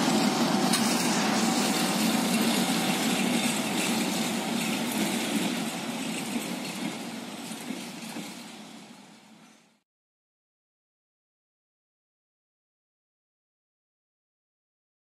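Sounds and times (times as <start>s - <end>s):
diesel locomotive engine running: 0.0s - 9.8s.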